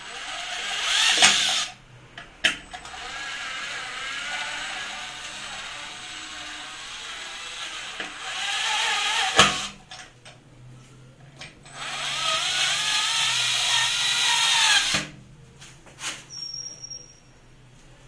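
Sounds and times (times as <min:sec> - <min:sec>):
electric screwdriver motor whining: 0:06.8 - 0:09.7.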